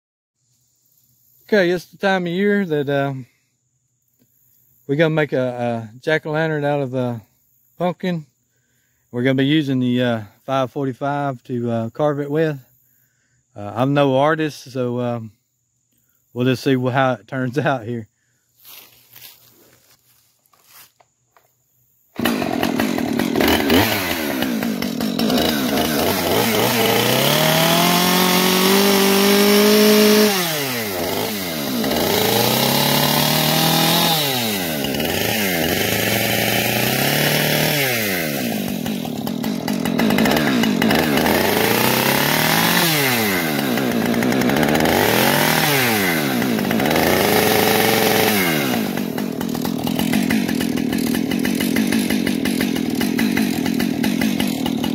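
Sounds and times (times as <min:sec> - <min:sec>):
chainsaw revving: 0:22.2 - 0:54.9.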